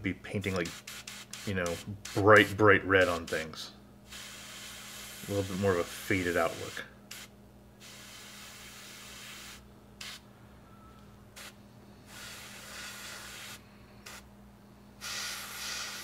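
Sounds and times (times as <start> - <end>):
steady low hum: 0.0 - 16.0
airbrush spraying hiss: 4.1 - 10.2, 11.4 - 14.3, 15.0 - 16.0.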